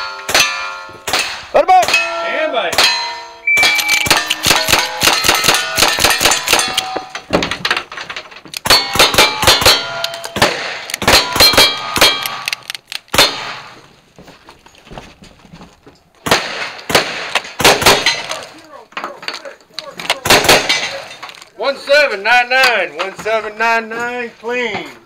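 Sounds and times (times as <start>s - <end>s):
bullets clanging on steel plate: 0.0s - 13.4s
rifle gunshots: 3.7s - 7.0s, 8.6s - 13.8s, 16.2s - 18.4s, 20.2s - 21.1s
faint gun handling sounds: 12.2s - 15.0s, 21.0s - 21.6s.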